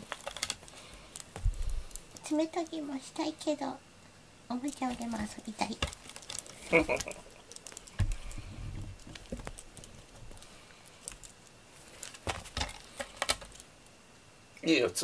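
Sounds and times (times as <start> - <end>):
cat claws clicking and scuffing: 0.0 - 2.8, 4.6 - 13.7.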